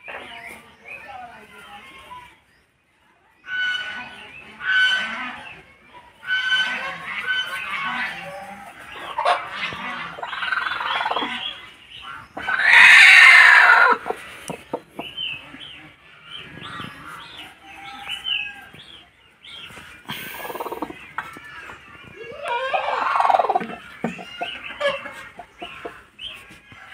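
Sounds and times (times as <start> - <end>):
chickens calling: 3.4 - 26.9
chicken harsh squawk: 12.4 - 14.2, 22.4 - 26.5.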